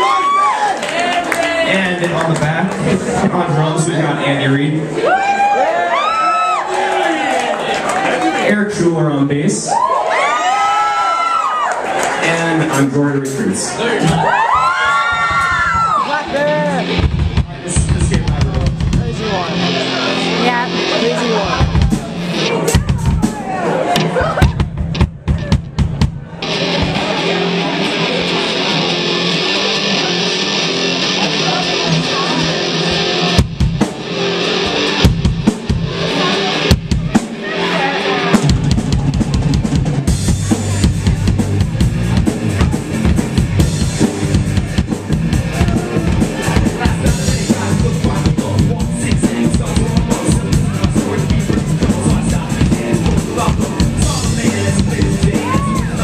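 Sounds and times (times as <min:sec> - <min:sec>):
drum kit: 0:12.3 - 0:56.0
electric guitar: 0:14.2 - 0:56.0
electric bass: 0:15.2 - 0:56.0.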